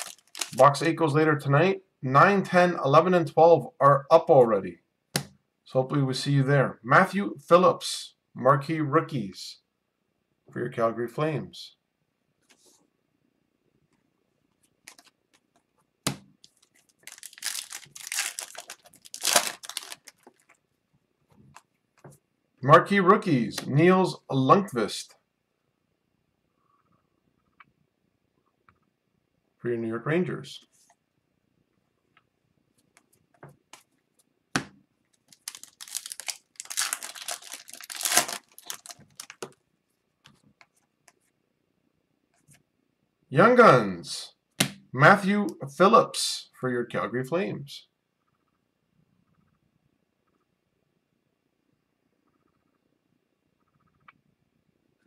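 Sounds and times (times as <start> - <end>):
card pack wrapper tearing: 0.0 - 0.9, 14.9 - 15.1, 16.4 - 20.5, 35.2 - 39.6.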